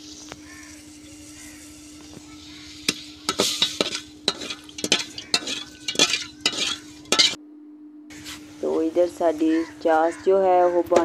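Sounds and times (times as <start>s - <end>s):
low steady hum: 0.0s - 11.0s
metal ladle scraping steel pot: 0.7s - 7.4s.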